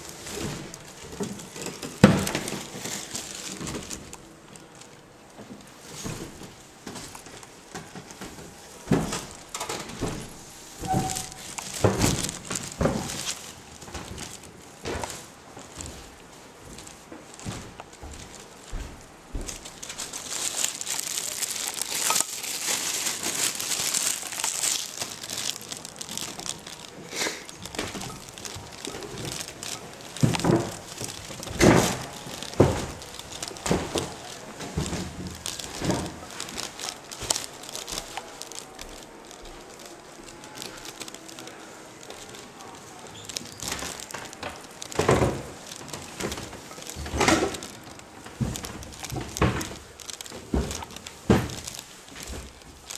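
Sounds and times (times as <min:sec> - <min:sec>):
crinkling and rustling at microphone: 0:00.0 - 0:52.9
footsteps on wooden stairs: 0:05.4 - 0:20.1, 0:27.5 - 0:40.4.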